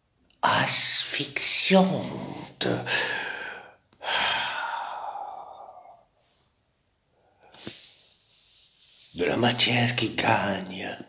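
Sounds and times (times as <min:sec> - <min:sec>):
man breathing heavily and gasping: 0:02.8 - 0:06.2.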